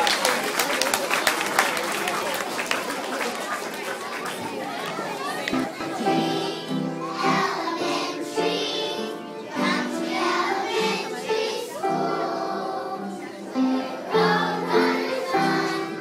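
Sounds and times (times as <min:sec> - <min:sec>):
children singing together: 0:05.6 - 0:16.0.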